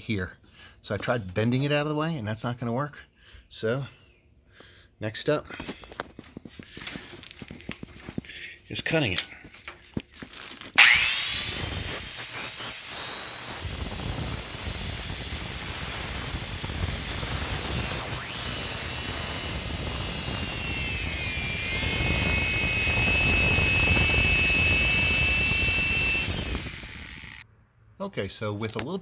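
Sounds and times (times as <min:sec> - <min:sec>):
compact saw cutting steel: 0:10.8 - 0:27.4.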